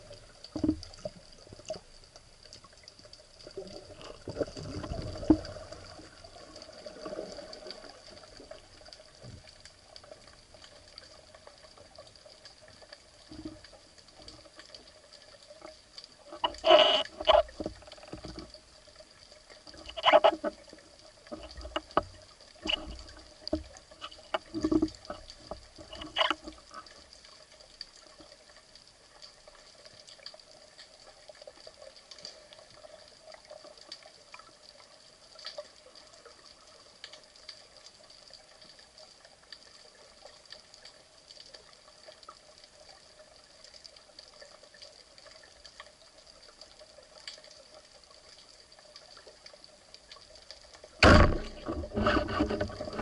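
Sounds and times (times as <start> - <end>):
underwater rumble: 0.0 - 27.4, 49.6 - 53.0
low underwater noise: 0.0 - 53.0
sharp clicks and knocks: 51.0 - 53.0.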